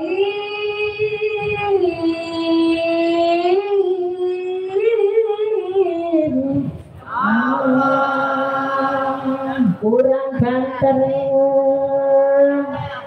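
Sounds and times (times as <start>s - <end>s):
woman chanting into microphone: 0.0s - 13.0s.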